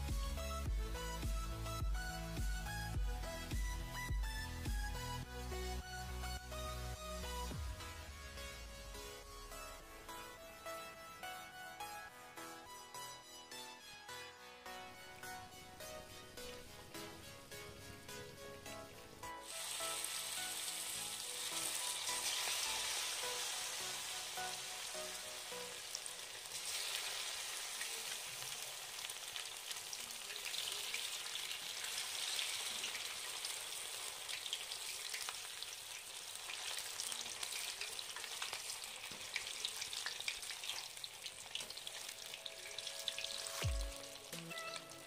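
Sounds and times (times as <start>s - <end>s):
fish sizzling in hot oil: 19.0s - 45.0s.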